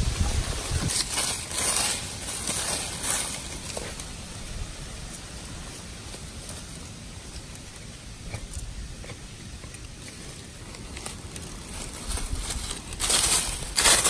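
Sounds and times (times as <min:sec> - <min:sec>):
low wind rumble on microphone: 0:00.0 - 0:01.2, 0:10.6 - 0:13.9
dry leaves rustling and crackling: 0:00.0 - 0:14.0.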